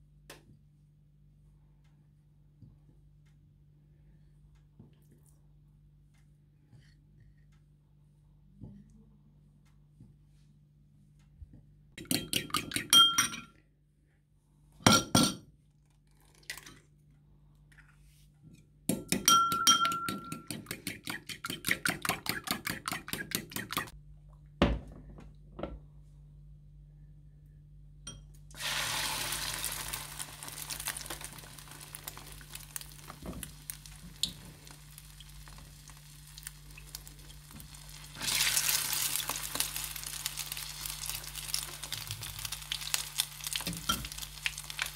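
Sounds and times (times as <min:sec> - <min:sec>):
fork clinking against ceramic bowl: 0:12.1 - 0:13.5
food sizzling in hot oil: 0:28.6 - 0:44.9.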